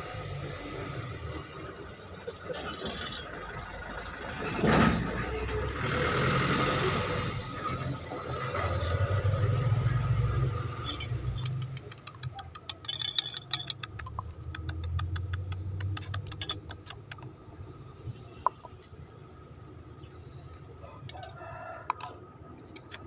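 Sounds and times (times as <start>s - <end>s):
motor vehicle engine rumble: 0.0s - 21.0s
sharp clicks and taps: 11.4s - 17.3s.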